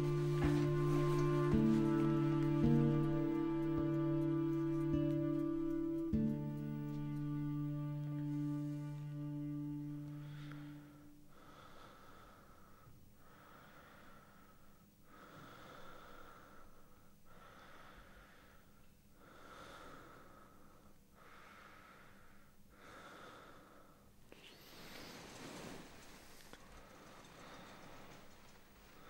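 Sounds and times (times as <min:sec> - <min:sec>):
man breathing slowly: 0:08.5 - 0:29.0.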